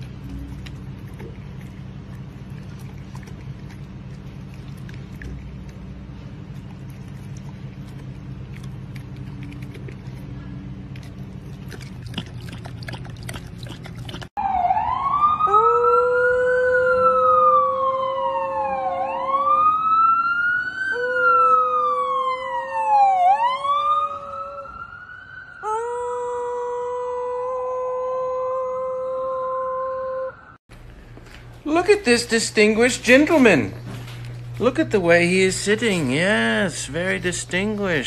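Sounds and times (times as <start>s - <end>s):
emergency siren wailing: 14.4s - 30.6s
dog howling: 15.5s - 19.7s, 25.6s - 30.4s.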